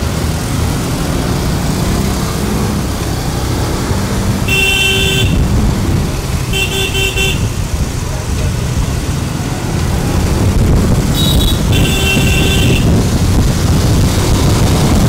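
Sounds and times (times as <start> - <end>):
road noise: 0.0 - 15.0
scooter and motorcycle engines: 0.0 - 15.0
vehicle horn toot: 4.5 - 5.4, 6.5 - 7.6, 11.1 - 13.0.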